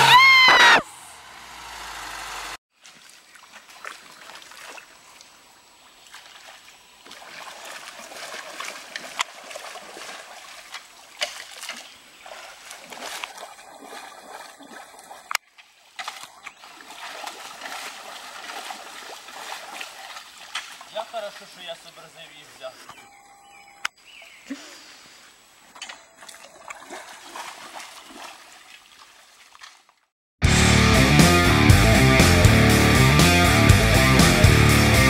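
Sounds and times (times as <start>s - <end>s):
squelching and splashing in mud: 2.7s - 21.6s, 25.4s - 30.1s
hand swishing in puddle: 6.1s - 20.9s.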